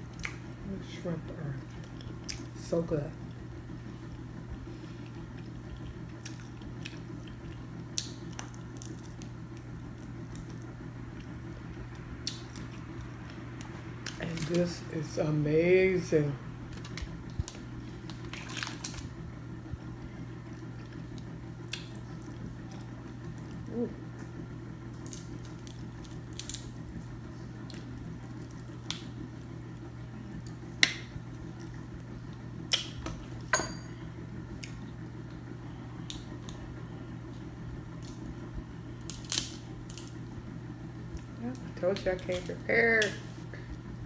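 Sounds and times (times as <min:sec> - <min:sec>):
steady low hum: 0:00.0 - 0:44.0
crab shells cracking: 0:05.8 - 0:09.7, 0:16.7 - 0:19.0, 0:25.0 - 0:26.7, 0:27.7 - 0:29.1, 0:39.0 - 0:40.2.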